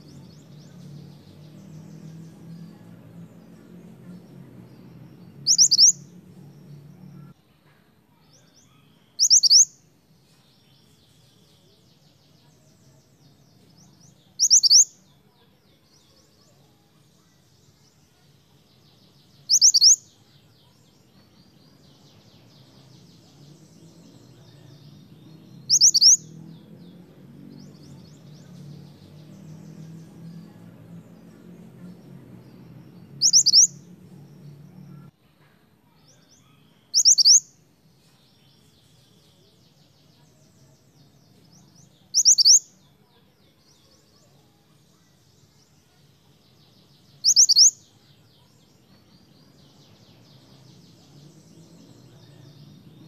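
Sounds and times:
faint bird twittering: 0.0 - 53.0
bird whistled calls: 5.4 - 6.0, 9.2 - 9.7, 14.4 - 14.9, 19.5 - 20.0, 25.7 - 26.2, 33.2 - 33.8, 36.9 - 37.5, 42.2 - 42.6, 47.2 - 47.8.

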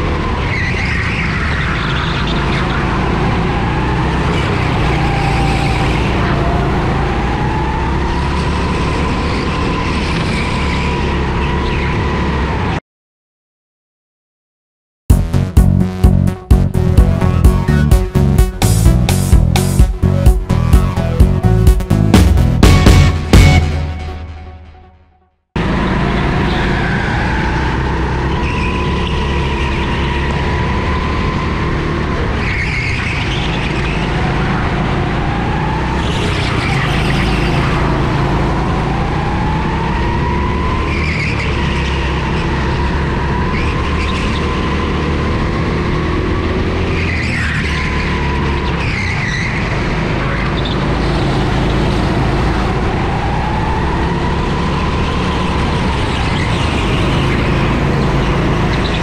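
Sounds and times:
go-kart engine revving: 0.0 - 12.8, 25.6 - 59.0.

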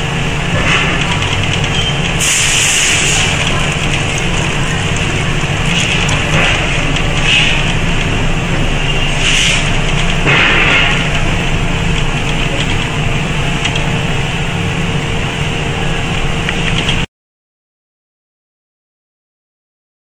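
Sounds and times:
machinery humming: 0.0 - 17.1
short hiss: 2.2 - 3.3.

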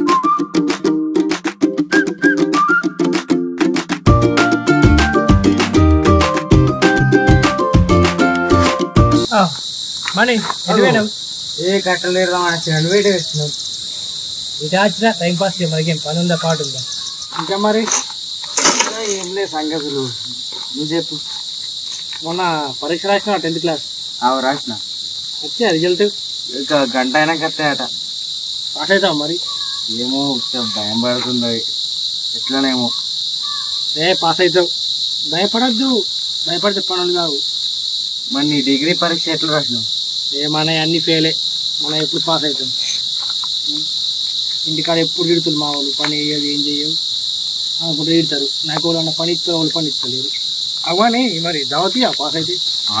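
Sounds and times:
high-pitched insect drone: 4.1 - 53.0
men talking: 9.2 - 13.6, 14.6 - 21.4, 22.1 - 24.8, 25.4 - 28.0, 28.8 - 31.7, 32.4 - 33.0, 34.0 - 34.7, 35.3 - 37.4, 38.3 - 43.0, 44.6 - 47.0, 47.8 - 53.0.

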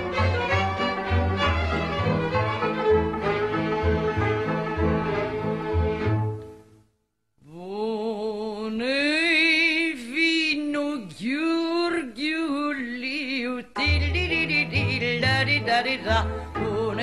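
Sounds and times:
instrumental music: 0.0 - 6.9, 13.6 - 17.0
woman singing alone: 7.4 - 17.0.

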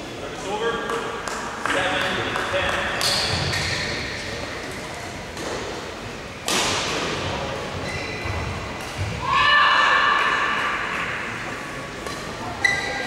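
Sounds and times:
shuttlecock hit echoing: 6.4 - 7.2.

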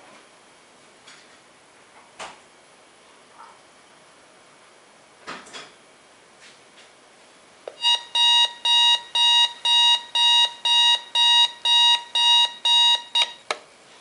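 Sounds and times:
alarm clock beeping: 7.8 - 13.4.

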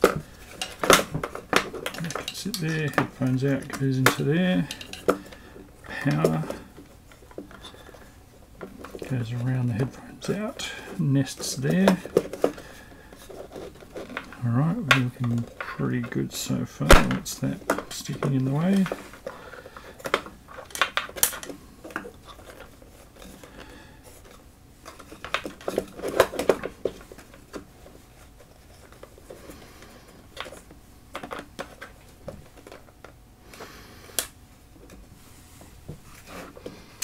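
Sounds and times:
hard pieces clicking and clattering: 0.0 - 8.1, 16.9 - 27.6.

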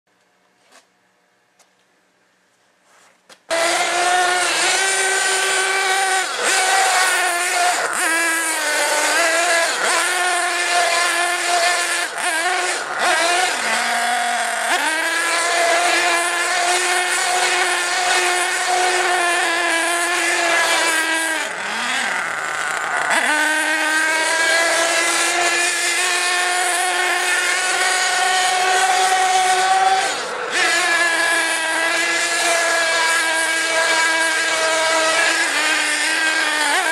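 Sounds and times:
model car engine revving: 3.5 - 36.9.

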